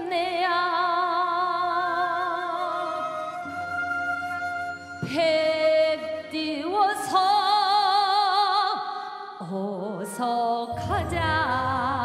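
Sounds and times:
high voice singing folk song: 0:05.1 - 0:12.0
deeper accompaniment: 0:10.7 - 0:12.0
steady accompaniment: 0:10.7 - 0:12.0.

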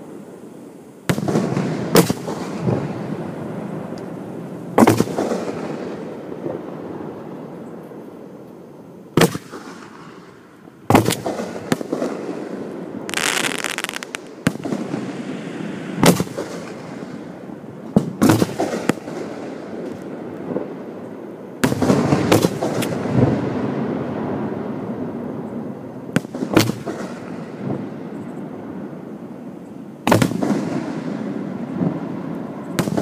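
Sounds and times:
crackling firework hiss: 0:00.0 - 0:06.2, 0:09.2 - 0:20.4
firework bangs: 0:01.1 - 0:03.3, 0:04.8 - 0:06.6, 0:09.2 - 0:10.2, 0:10.9 - 0:20.7, 0:21.6 - 0:23.9, 0:30.1 - 0:32.0, 0:32.8 - 0:33.0.

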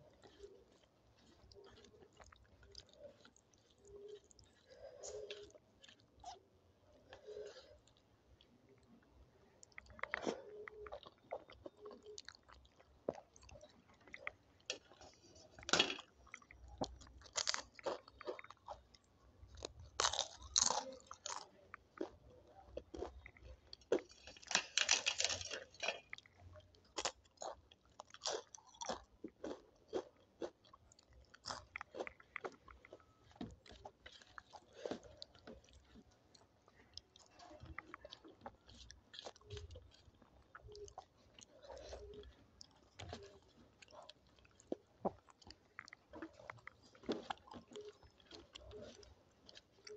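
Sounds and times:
person chewing crunchy food: 0:00.0 - 0:49.9.

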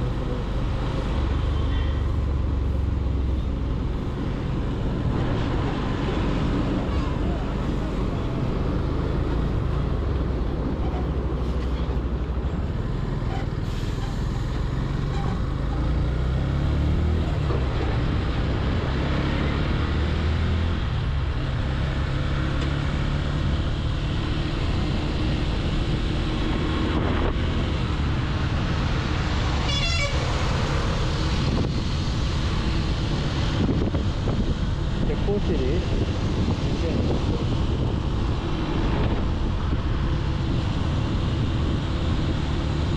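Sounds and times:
vehicle horn: 0:29.6 - 0:30.3.

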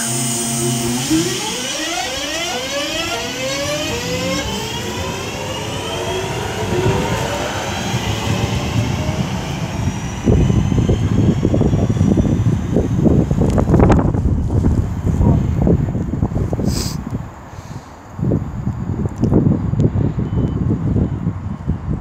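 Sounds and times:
electric train motor whine: 0:00.0 - 0:14.9
low rumble: 0:00.0 - 0:16.6.

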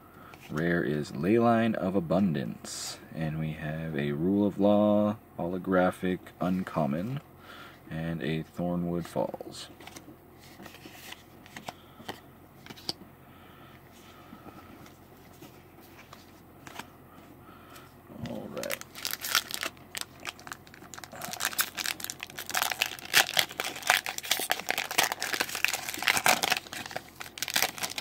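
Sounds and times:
foil wrapper tearing and crinkling: 0:18.5 - 0:28.0.

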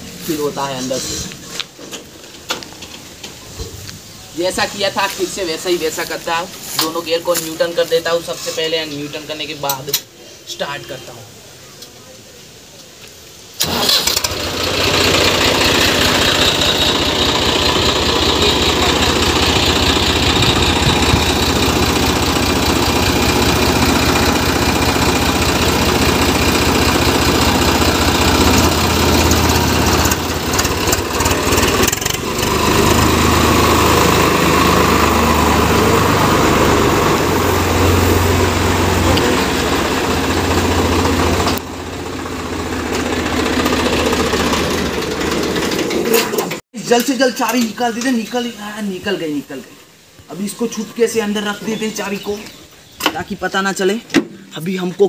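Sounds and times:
tractor diesel engine running: 0:13.6 - 0:46.6.

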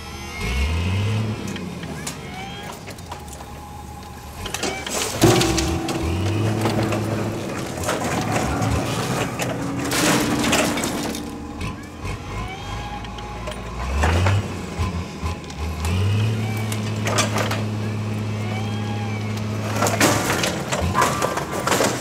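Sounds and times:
forklift engine revving: 0:00.0 - 0:21.4
piano crashing onto paving: 0:05.2 - 0:12.6
wood cracking and splintering: 0:19.6 - 0:22.0.

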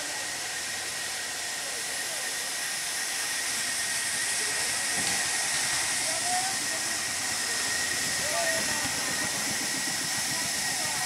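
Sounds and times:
thin steady whine: 0:00.0 - 0:11.0.

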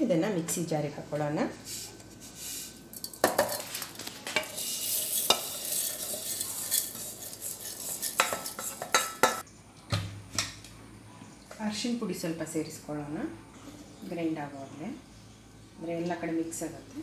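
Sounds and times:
spatula scraping metal pan: 0:04.4 - 0:09.4.

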